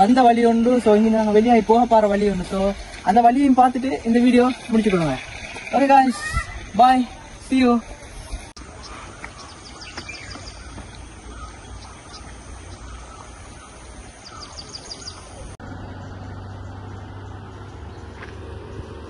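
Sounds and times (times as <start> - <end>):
small birds chirping: 0.0 - 19.0
vehicle engine humming: 0.0 - 19.0.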